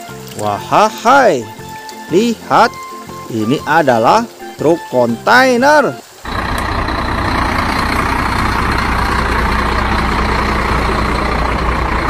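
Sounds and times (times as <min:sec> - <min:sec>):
heavy truck engine running: 0:06.0 - 0:12.0.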